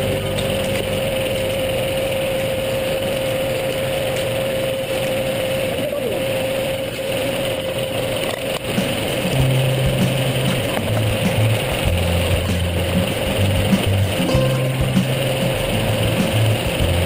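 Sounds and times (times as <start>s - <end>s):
sawmill running: 0.0s - 17.0s
held hum: 8.7s - 17.0s.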